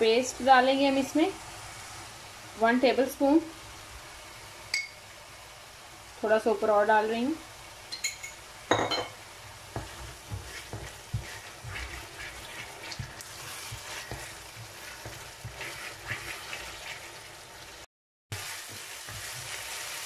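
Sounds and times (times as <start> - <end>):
masala sizzling in oil: 0.0 - 20.0
wooden spoon scraping a pan: 9.7 - 17.7, 18.4 - 20.0.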